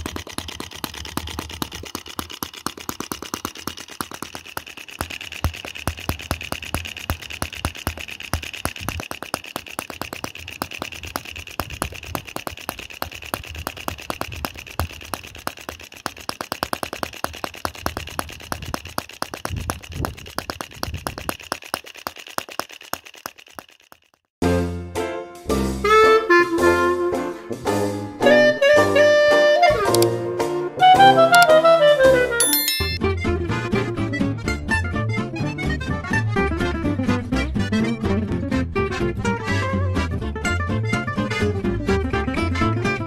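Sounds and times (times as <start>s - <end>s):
model gas engine running: 0.0s - 24.3s
music: 24.4s - 43.0s.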